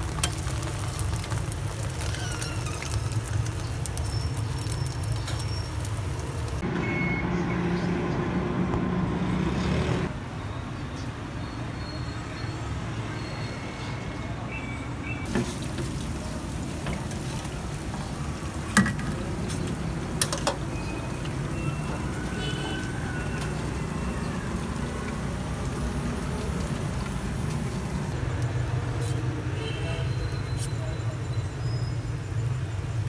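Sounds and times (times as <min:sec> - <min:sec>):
deep-fryer sizzle: 0:00.0 - 0:07.8, 0:15.2 - 0:33.0
low traffic rumble: 0:00.0 - 0:33.0.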